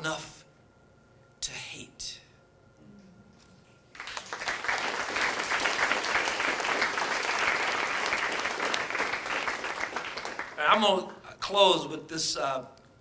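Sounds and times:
audience applauding: 3.9 - 10.8.

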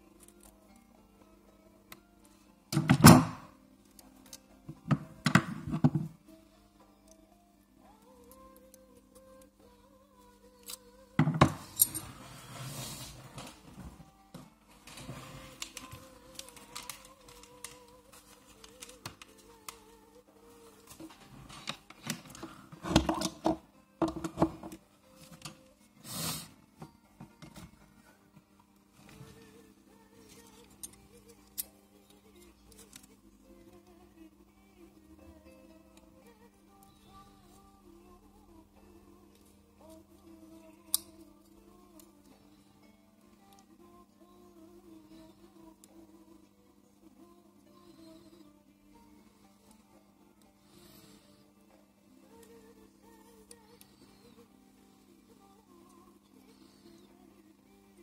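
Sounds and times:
background music: 0.0 - 58.0
short hiss: 26.0 - 26.5.

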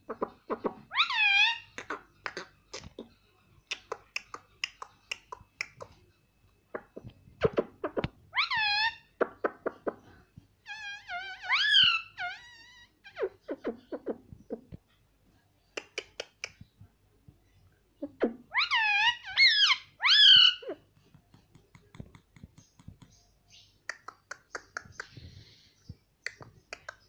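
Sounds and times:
parakeet calls: 0.1 - 2.5, 10.7 - 14.6, 18.5 - 20.8.

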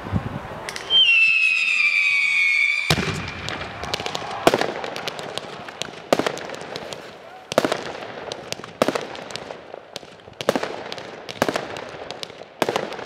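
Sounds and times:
firework whistle falling in pitch: 0.7 - 4.4
firework shells bursting: 0.7 - 13.0
fireworks crackling and popping: 0.7 - 13.0.

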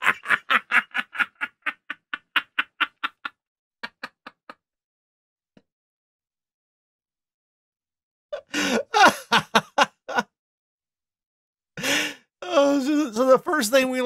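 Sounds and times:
man laughing hard: 0.0 - 4.5, 8.4 - 10.2.

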